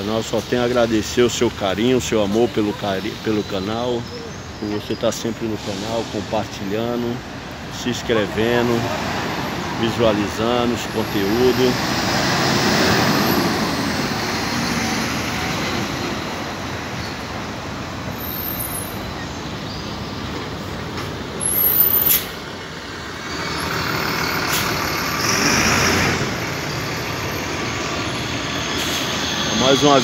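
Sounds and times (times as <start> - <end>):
buses and traffic passing: 0.0 - 30.0
air brakes hiss: 5.6 - 6.6, 21.5 - 22.4, 28.8 - 29.3.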